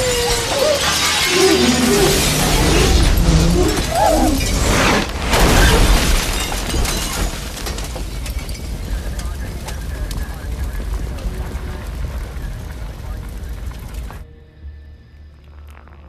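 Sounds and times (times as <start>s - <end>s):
glass shattering: 0.0s - 10.1s
explosion blast: 0.0s - 14.2s
deep rumble: 0.0s - 16.0s
music: 13.8s - 16.0s.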